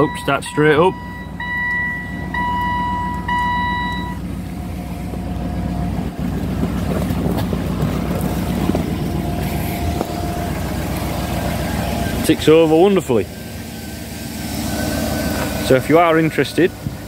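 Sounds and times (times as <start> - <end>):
dashboard warning chime beeps: 0.0 - 4.3
car engine idling: 0.0 - 17.0.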